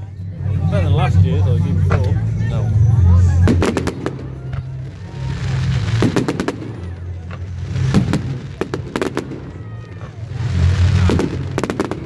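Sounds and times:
fireworks bursting bangs: 0:03.4 - 0:12.0.

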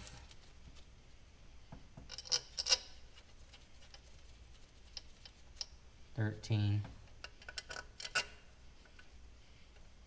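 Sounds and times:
metal bolts clinking: 0:02.1 - 0:03.0, 0:07.1 - 0:08.4.

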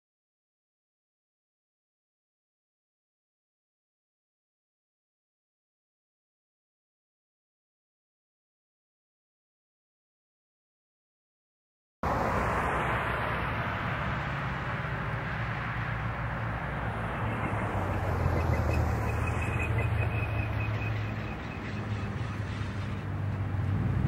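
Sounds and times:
road traffic passing: 0:12.0 - 0:24.0.

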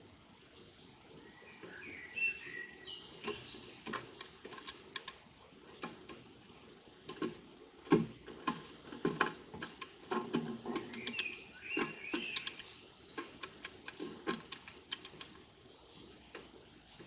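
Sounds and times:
beak tapping on wood: 0:07.1 - 0:15.4
high bird chirps: 0:10.8 - 0:13.5.

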